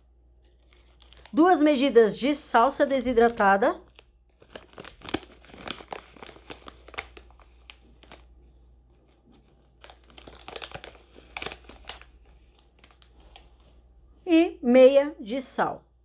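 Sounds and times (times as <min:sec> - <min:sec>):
plastic sachet crinkling: 0:00.3 - 0:13.9.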